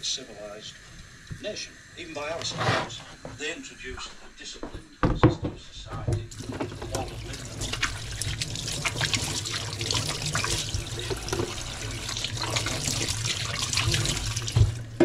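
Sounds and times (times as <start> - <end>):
knock: 5.0 - 6.7
tap water running into sink: 6.0 - 15.0.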